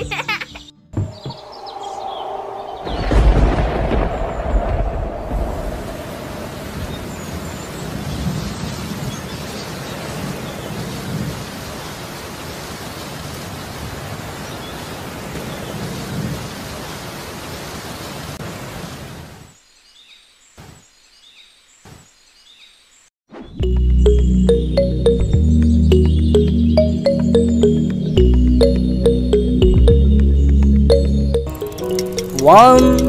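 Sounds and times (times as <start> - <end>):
low thunder rumbles: 1.1 - 9.1.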